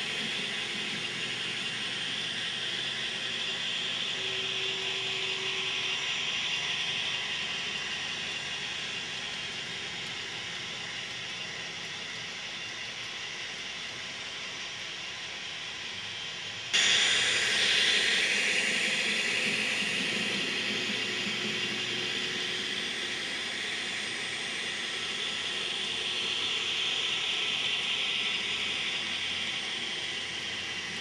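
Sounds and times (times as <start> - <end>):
model train rolling on track: 0.0 - 31.0.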